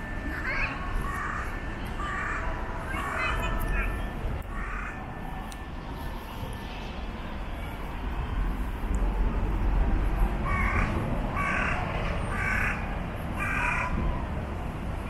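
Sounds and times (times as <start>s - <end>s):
steady low rumble: 0.0s - 15.0s
crow cawing: 4.5s - 5.0s, 10.4s - 14.0s.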